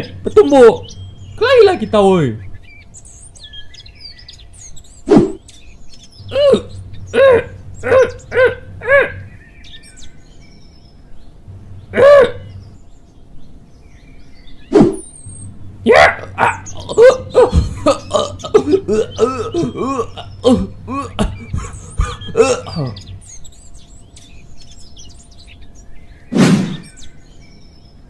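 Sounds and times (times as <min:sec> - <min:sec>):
faint bird chirps: 0:00.0 - 0:28.0
man grunting with effort: 0:06.3 - 0:09.3, 0:11.9 - 0:12.5, 0:15.9 - 0:23.2
man choking and gasping: 0:16.8 - 0:23.0.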